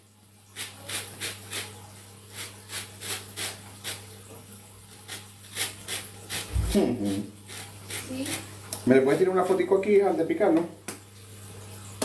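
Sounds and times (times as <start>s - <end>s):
peel rasping on metal grater: 7.5s - 9.6s.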